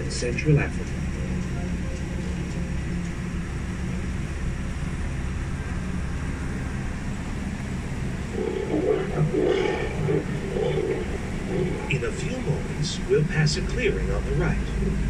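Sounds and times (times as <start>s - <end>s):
vehicle drone in motion: 0.0s - 15.0s
loud wavering sound: 8.2s - 15.0s.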